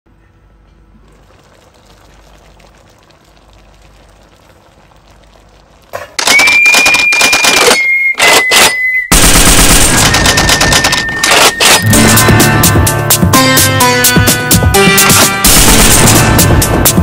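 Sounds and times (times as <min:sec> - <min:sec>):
pot simmering crackle: 0:01.0 - 0:06.6
high whistling tone: 0:06.3 - 0:09.1
rapid rattling clicks: 0:09.7 - 0:11.8.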